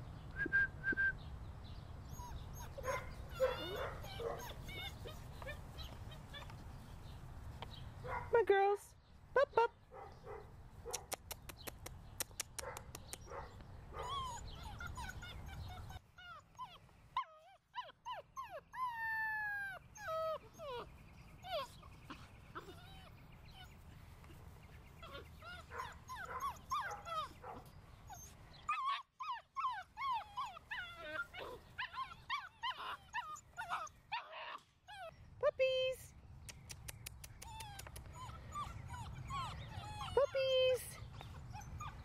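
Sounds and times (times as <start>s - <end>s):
puppies whining and yipping: 2.0s - 6.9s, 14.0s - 35.2s, 37.4s - 42.0s.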